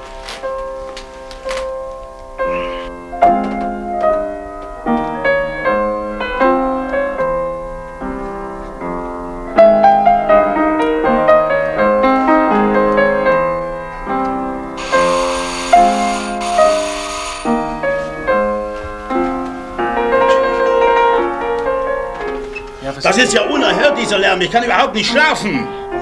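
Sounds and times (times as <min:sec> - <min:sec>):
piano piece: 0:00.0 - 0:26.0
loud noisy buzz: 0:14.8 - 0:18.1.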